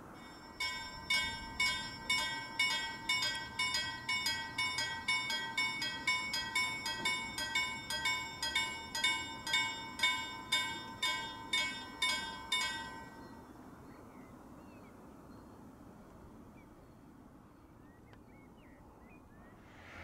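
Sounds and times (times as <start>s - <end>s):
level crossing warning bell: 0.0s - 13.7s.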